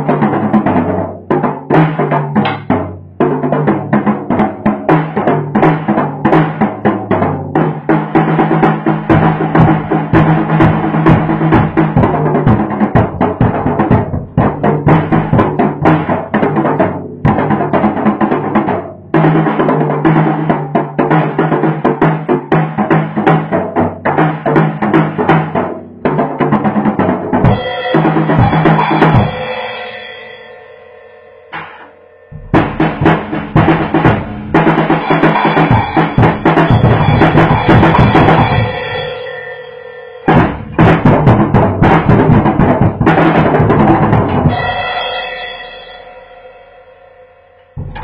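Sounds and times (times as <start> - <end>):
drum kit hits: 0.0 - 30.7, 31.5 - 46.2, 47.7 - 48.0
ringing drum hit: 27.4 - 43.0, 43.9 - 48.0
music with low bass note: 31.5 - 38.8, 47.8 - 48.0.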